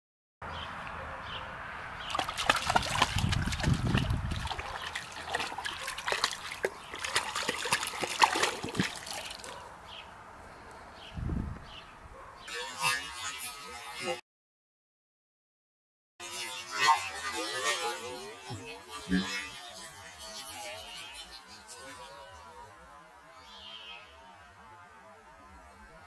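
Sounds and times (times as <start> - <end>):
paws splashing in water: 2.0 - 9.7.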